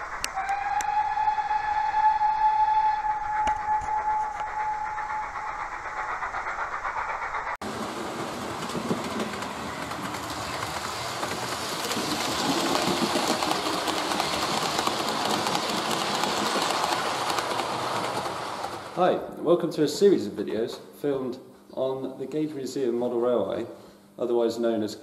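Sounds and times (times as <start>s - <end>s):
whistle-like tone: 0.0s - 6.8s
model train rumbling: 0.0s - 19.2s
wheels clicking on rails: 2.9s - 19.0s.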